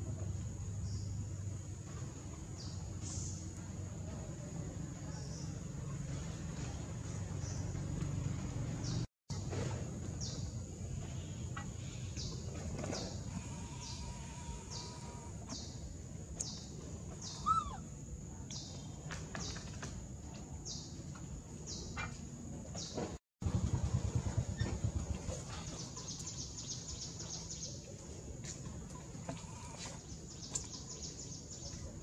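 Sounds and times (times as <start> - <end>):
birds chirping: 10.2 - 19.8, 24.4 - 32.0
insects buzzing: 11.2 - 15.8.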